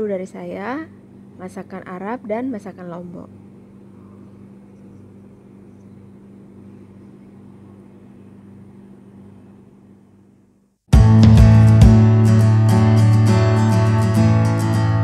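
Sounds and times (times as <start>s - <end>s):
faint low hum: 0.0s - 10.8s.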